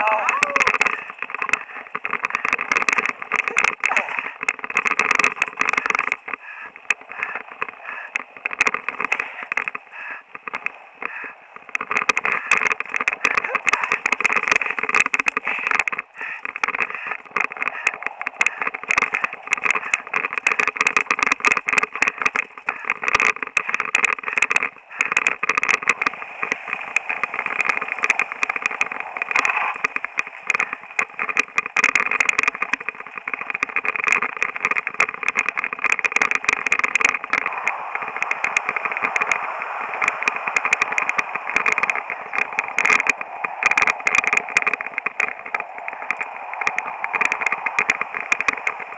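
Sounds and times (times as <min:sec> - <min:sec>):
mountain bike rattling on dirt trail: 0:00.0 - 0:48.9.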